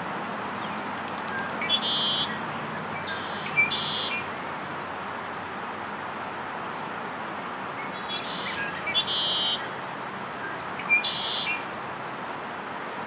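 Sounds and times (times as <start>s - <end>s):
steady background hiss: 0.0s - 13.0s
blackbird singing: 0.6s - 4.3s, 7.8s - 9.7s, 10.4s - 11.6s.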